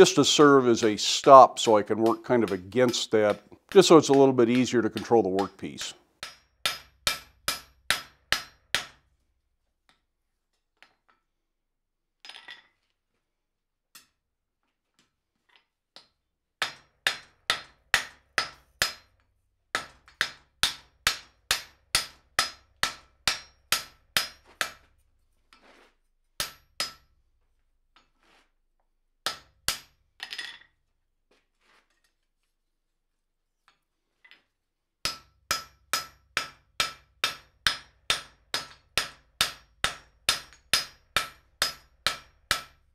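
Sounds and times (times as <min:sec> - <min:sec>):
hammer blows on anvil: 0:01.6 - 0:08.8.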